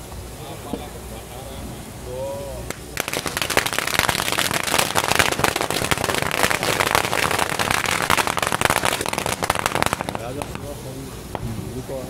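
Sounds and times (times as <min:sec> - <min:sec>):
firecrackers banging: 0:02.7 - 0:11.8.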